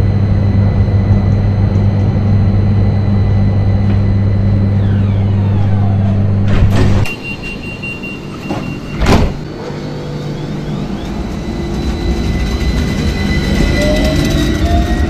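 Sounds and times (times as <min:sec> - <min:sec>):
tram running rumble: 0:00.0 - 0:15.0
tram traction drive whining: 0:00.0 - 0:15.0
loud thump: 0:06.4 - 0:07.1, 0:08.5 - 0:09.4.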